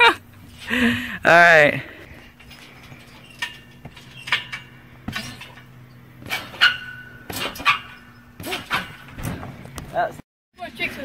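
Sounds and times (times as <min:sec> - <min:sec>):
trampoline springs squeaking: 0:00.0 - 0:11.0
trampoline mat thumping: 0:02.4 - 0:10.1.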